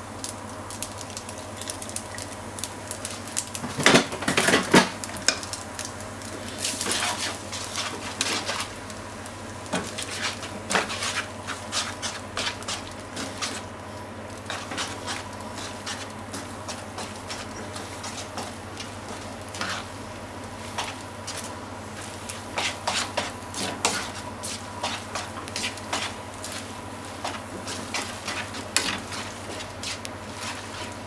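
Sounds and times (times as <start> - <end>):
light sizzle: 0.0 - 31.0.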